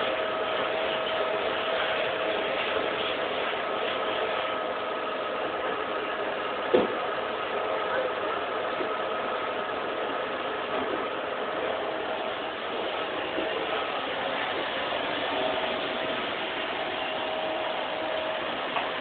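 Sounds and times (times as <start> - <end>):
vacuum cleaner running: 0.0 - 19.0.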